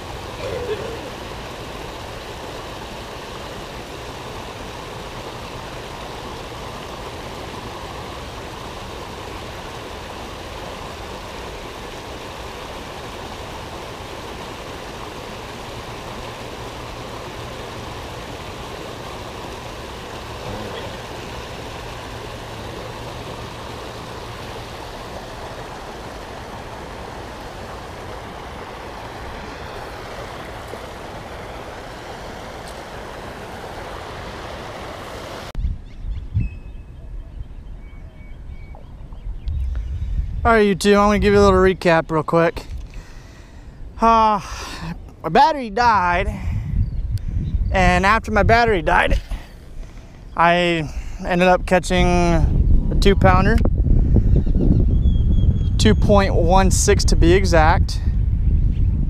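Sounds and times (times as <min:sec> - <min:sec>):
waterfall rushing: 0:00.0 - 0:35.6.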